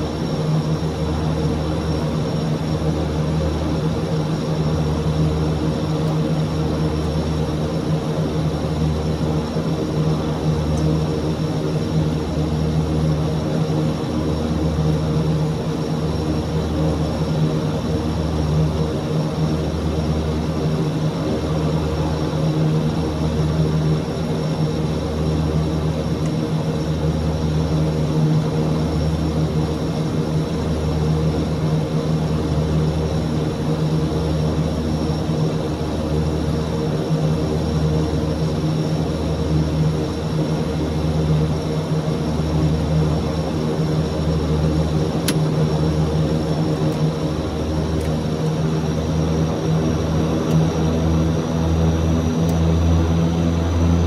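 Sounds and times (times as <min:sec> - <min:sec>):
turboprop engines droning: 0:00.0 - 0:54.0
brief click: 0:45.2 - 0:45.5.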